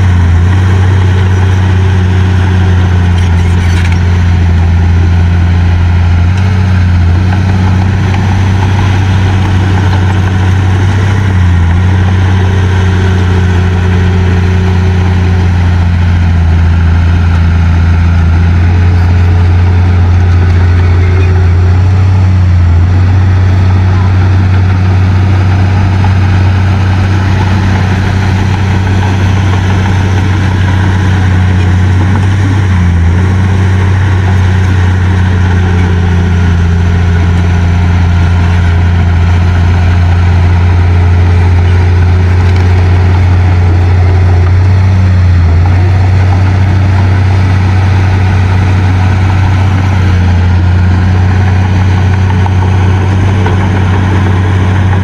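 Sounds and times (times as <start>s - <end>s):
heavy diesel engines droning: 0.0s - 55.0s.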